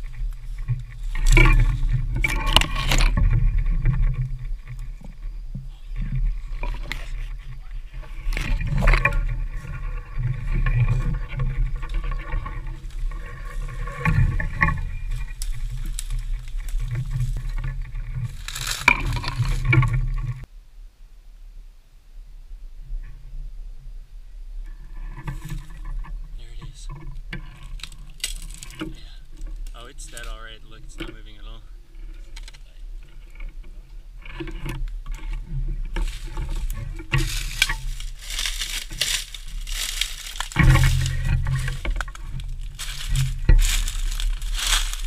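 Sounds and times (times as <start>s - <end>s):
camera handling rumble: 0.0s - 5.2s
branches scraping and rustling: 0.0s - 20.5s, 24.7s - 45.0s
brush crashing: 6.7s - 20.2s, 35.9s - 45.0s
footsteps in dry leaves: 18.2s - 19.6s, 36.0s - 45.0s.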